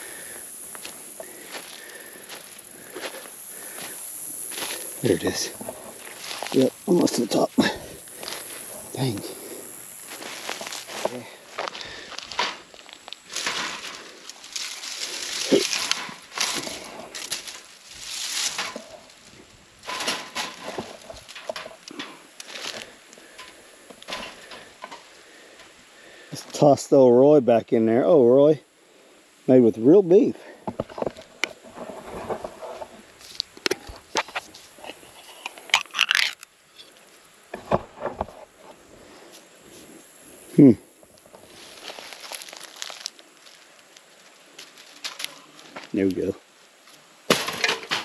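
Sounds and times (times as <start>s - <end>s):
dry leaves crunching and rustling: 4.5s - 9.2s, 9.9s - 23.0s, 41.3s - 46.1s.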